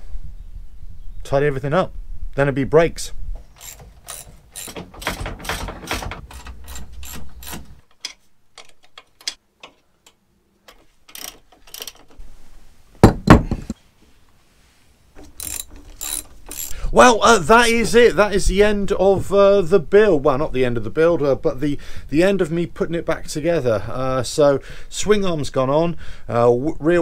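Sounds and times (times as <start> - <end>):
ratchet wrench clicking: 3.5 - 9.4, 11.1 - 12.1, 15.3 - 16.9
heavy knock: 13.0 - 13.8.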